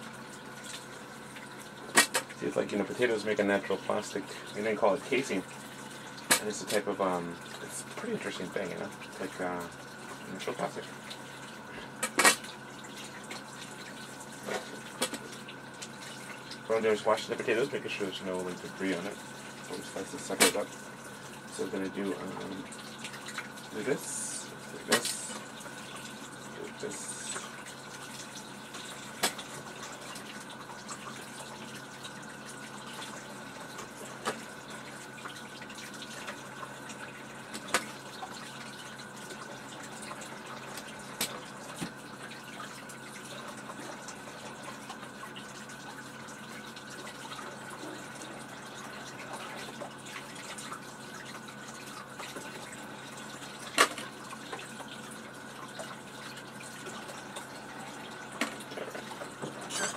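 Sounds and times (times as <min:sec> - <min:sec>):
tap water running: 0:00.0 - 0:59.9.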